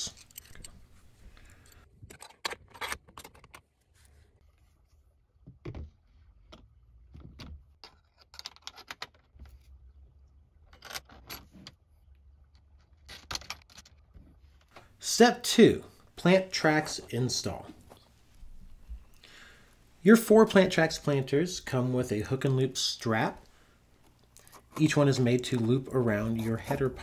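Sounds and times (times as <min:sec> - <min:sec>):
light metal clicks and clinks: 0:00.0 - 0:01.9.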